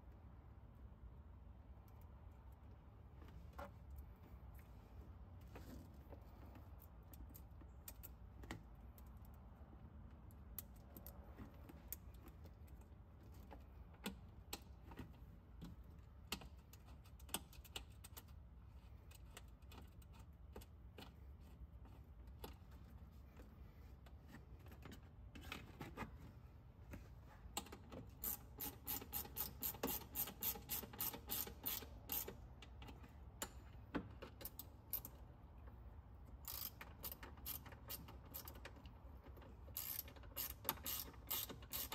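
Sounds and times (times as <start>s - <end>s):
small metallic clicks and taps: 5.4s - 9.4s, 10.0s - 23.5s, 27.5s - 35.8s
ratchet wrench clicking: 28.2s - 32.4s, 36.4s - 38.8s, 39.7s - 41.9s.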